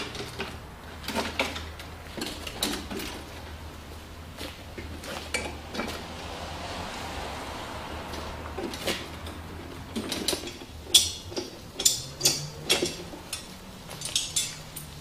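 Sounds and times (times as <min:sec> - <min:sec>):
lawnmower deck clanking and rattling: 0:00.0 - 0:03.6, 0:08.6 - 0:14.9.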